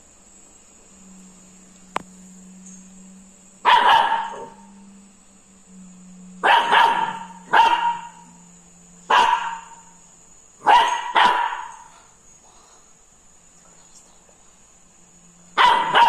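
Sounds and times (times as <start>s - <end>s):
puppy barking: 3.6s - 4.6s, 6.4s - 8.2s, 9.1s - 9.8s, 10.6s - 11.9s, 15.6s - 16.0s.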